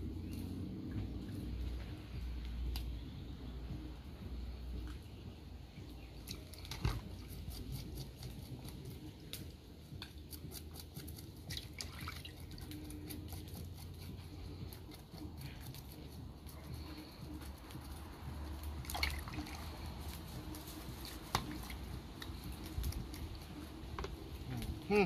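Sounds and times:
water dripping: 0:18.6 - 0:19.9.

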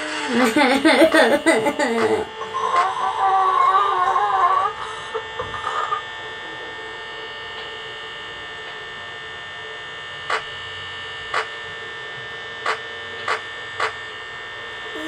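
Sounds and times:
wavering pitched tone: 0:00.0 - 0:08.9
steady hum with high whine: 0:00.0 - 0:15.0.

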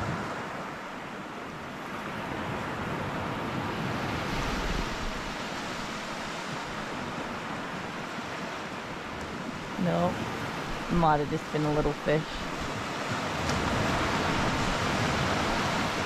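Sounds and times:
surf washing onto beach: 0:00.0 - 0:16.0
wind: 0:00.0 - 0:16.0.

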